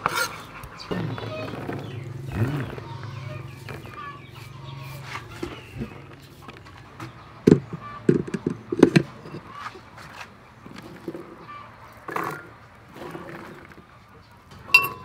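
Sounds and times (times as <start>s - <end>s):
chickens clucking: 0.0s - 15.0s
blender jar knocking on base: 7.5s - 9.1s.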